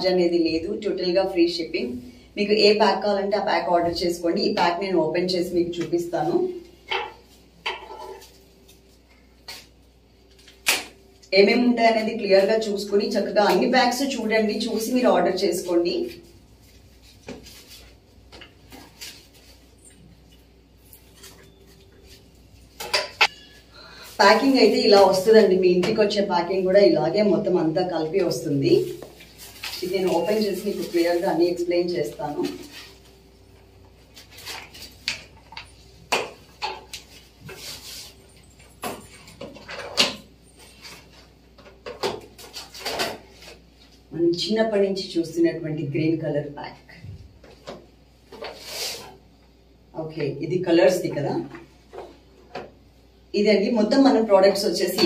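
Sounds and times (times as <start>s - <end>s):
packaging rustling and crinkling: 28.7s - 31.6s.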